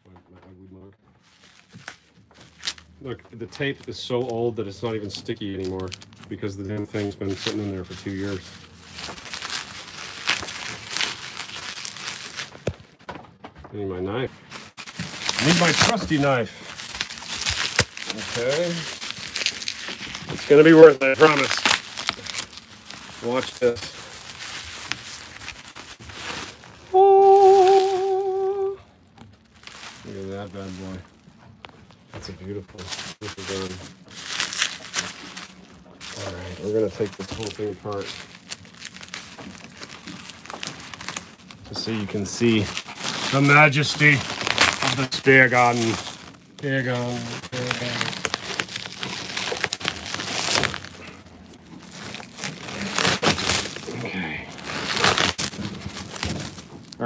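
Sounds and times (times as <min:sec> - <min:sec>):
bubble wrap rustling: 0:00.6 - 0:13.2, 0:13.8 - 0:57.0
man singing a held note: 0:26.9 - 0:28.9.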